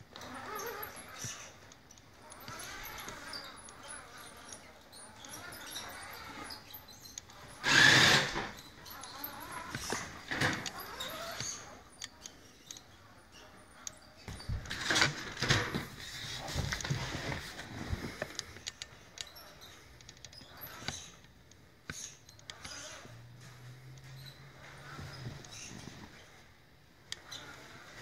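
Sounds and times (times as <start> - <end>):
toy car motor whirring: 0.1 - 15.0, 18.1 - 21.3, 21.9 - 23.1
scrapes and clicks: 13.8 - 23.6.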